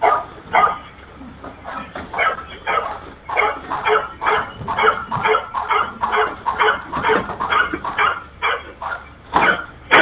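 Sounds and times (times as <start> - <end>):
dog barking rapidly: 0.0 - 0.9, 2.1 - 10.0.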